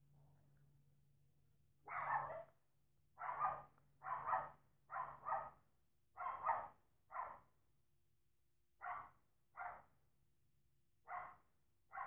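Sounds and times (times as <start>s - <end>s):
dog barking: 1.9s - 2.5s, 3.2s - 5.6s, 6.2s - 7.5s, 8.8s - 9.9s, 11.1s - 12.0s.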